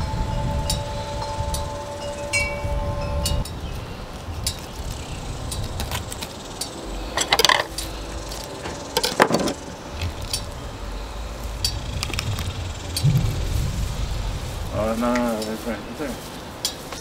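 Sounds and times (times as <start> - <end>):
low steady rumble: 0.0 - 16.6
loud noisy bursts: 9.6 - 16.3.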